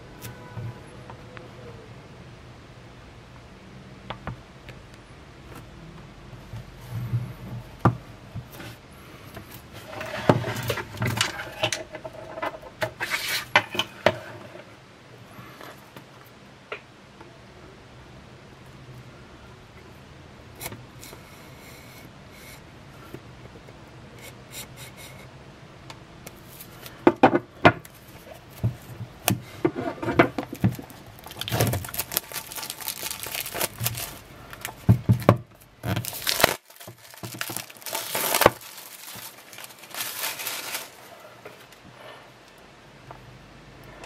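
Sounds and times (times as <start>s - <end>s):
plastic wrap crinkling and tearing: 30.4s - 41.8s.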